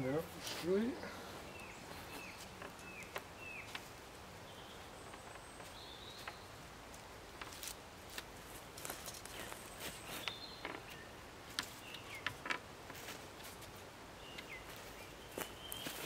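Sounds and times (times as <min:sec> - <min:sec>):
tripod clicks and rustles: 0:05.0 - 0:16.0
footsteps on leaf litter: 0:07.5 - 0:10.3, 0:14.6 - 0:16.0
bird chirps: 0:09.3 - 0:12.4, 0:14.2 - 0:16.0.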